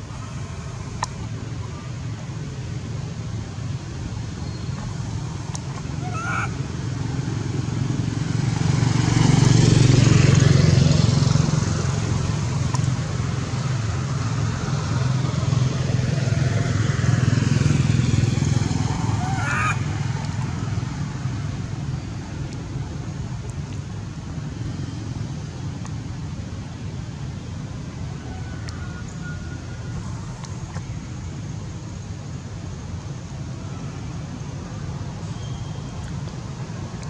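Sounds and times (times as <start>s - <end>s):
vehicles passing: 0.0s - 37.0s
baby monkeys crying: 6.0s - 6.6s.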